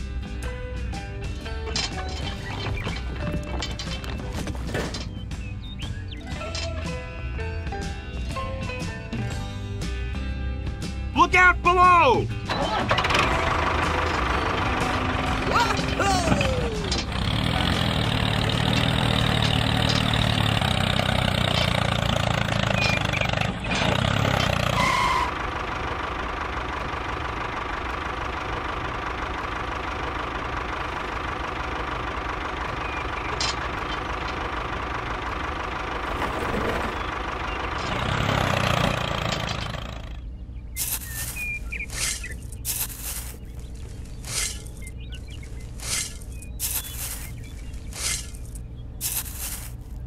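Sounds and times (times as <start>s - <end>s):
small tractor engine running: 0.0s - 11.0s, 12.3s - 50.0s.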